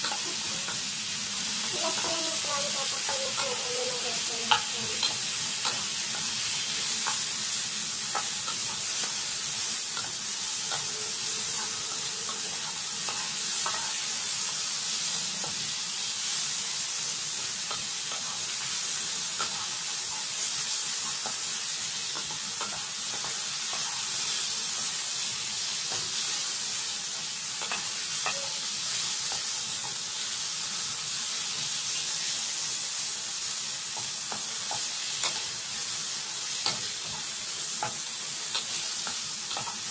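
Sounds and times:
food sizzling in oil: 0.0s - 39.9s
wooden spatula tapping and scraping: 4.2s - 6.4s.

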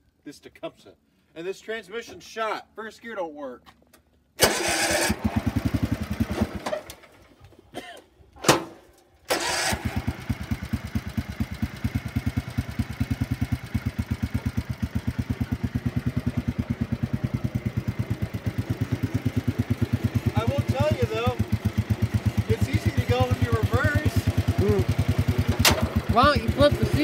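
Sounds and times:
small engine cranking and running: 4.4s - 7.1s, 9.3s - 27.0s.

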